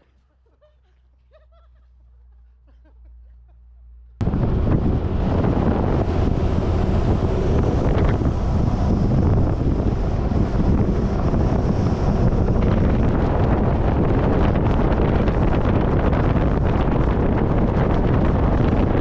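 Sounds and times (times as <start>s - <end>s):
vehicle rumble on dirt road: 1.3s - 19.0s
wind buffeting microphone: 4.2s - 19.0s.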